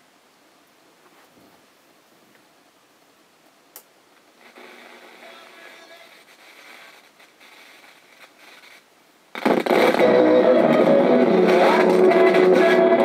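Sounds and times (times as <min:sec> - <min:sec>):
faint radio playing: 0:00.0 - 0:13.0
radio playing guitar music: 0:04.4 - 0:08.5, 0:09.3 - 0:13.0.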